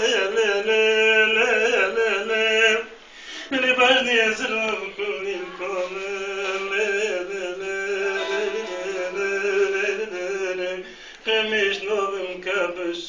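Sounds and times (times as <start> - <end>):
man singing ornamented line: 3.5 - 13.0
lute playing with a drone: 8.0 - 10.1.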